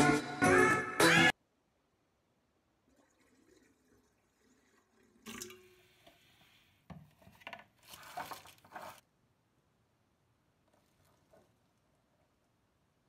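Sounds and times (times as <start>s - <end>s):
water splashing into metal bowl: 4.4s - 5.8s.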